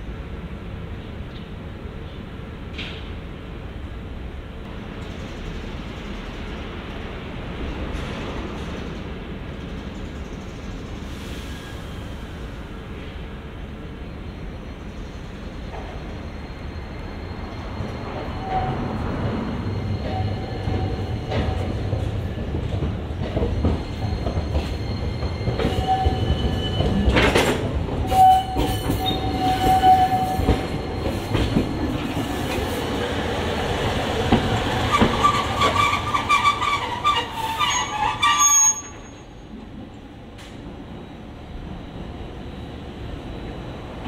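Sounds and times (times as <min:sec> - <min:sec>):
streetcar rumbling and knocks: 0:00.0 - 0:44.0
streetcar wheels squealing on rails: 0:07.8 - 0:39.6.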